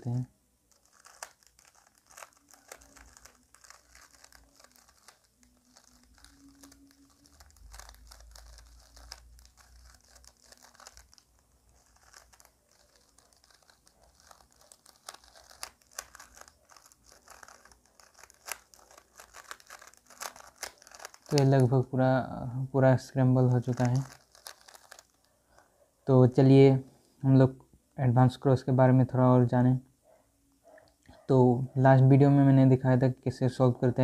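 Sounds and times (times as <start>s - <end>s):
speed cube clicking: 0.7s - 21.7s, 23.6s - 25.2s.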